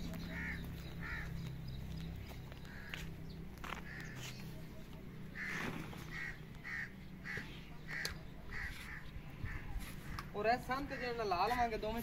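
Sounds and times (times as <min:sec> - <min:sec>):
crow cawing: 0:00.3 - 0:01.4, 0:02.6 - 0:04.4, 0:05.3 - 0:11.5.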